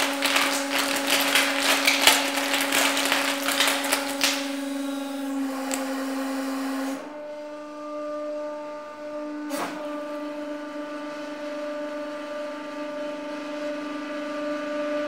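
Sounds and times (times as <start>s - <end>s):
bubble wrap popping: 0.0s - 6.1s
hydraulic pump hum: 0.0s - 14.8s.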